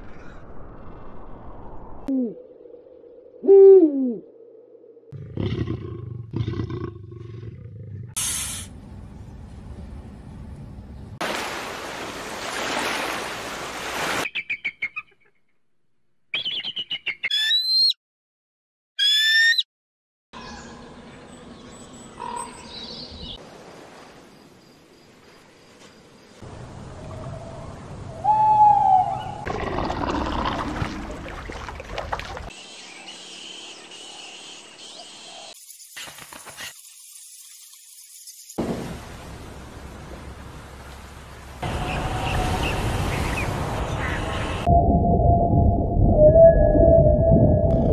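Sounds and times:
high whistled bird chirps: 0:16.3 - 0:18.0.

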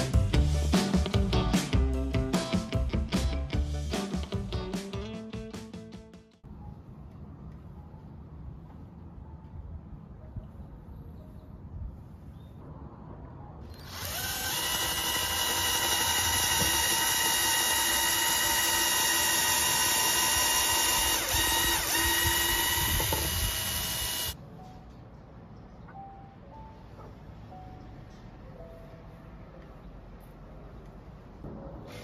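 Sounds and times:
cordless drill boring into wood: 0:13.7 - 0:24.4.

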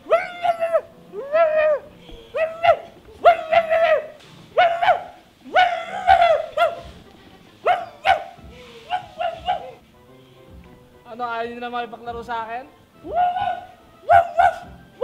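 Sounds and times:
small dog barking and yelping: 0:00.0 - 0:06.8, 0:07.6 - 0:09.8, 0:13.1 - 0:14.8.

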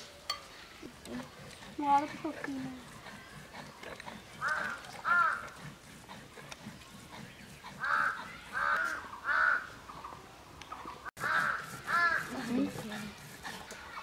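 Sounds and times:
crow cawing: 0:04.5 - 0:05.4, 0:07.8 - 0:09.7, 0:11.2 - 0:12.3.

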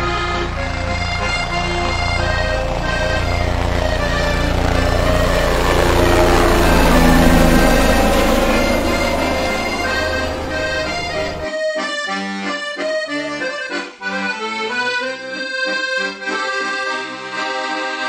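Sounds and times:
helicopter rumble: 0:00.0 - 0:11.5
accordion playing lively tune: 0:00.0 - 0:18.0.

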